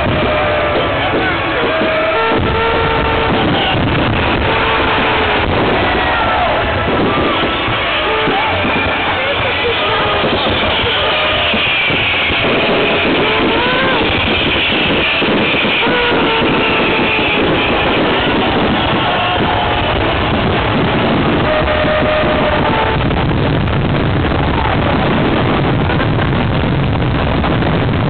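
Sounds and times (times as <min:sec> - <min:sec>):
fireworks bangs and crackles: 0:00.0 - 0:28.0.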